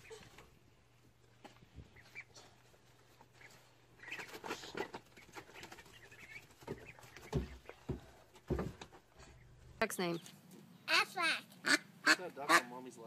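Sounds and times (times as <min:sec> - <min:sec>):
ducklings peeping: 0:00.0 - 0:12.8
dull thumps: 0:06.6 - 0:09.1.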